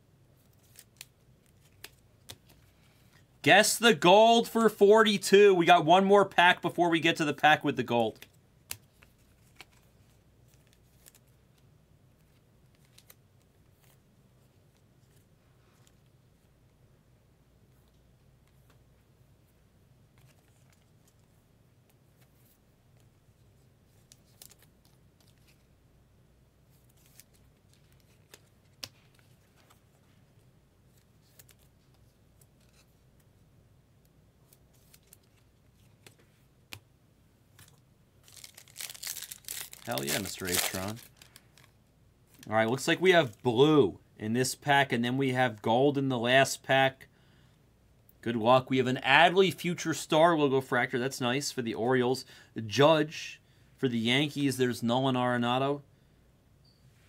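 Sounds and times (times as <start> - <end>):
foil wrapper crinkling: 37.6 - 42.5.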